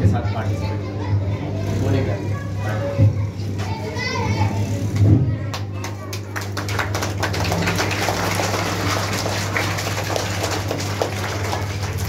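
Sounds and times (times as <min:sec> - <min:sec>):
steady low hum: 0:00.0 - 0:12.0
crowd clapping and cheering: 0:04.9 - 0:12.0.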